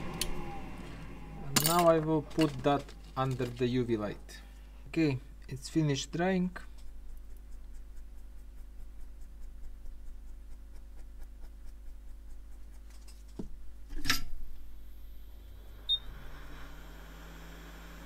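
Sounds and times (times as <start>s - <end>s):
low hum rising in pitch: 0.0s - 3.2s
electrical hum: 0.0s - 18.0s.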